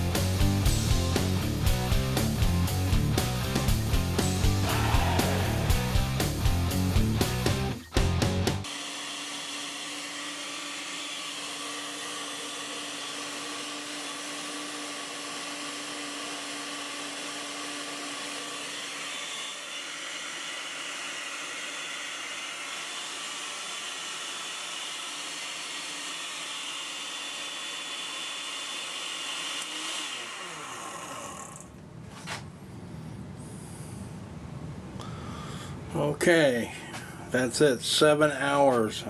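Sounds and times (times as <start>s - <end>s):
blender motor whirring: 8.6s - 31.8s.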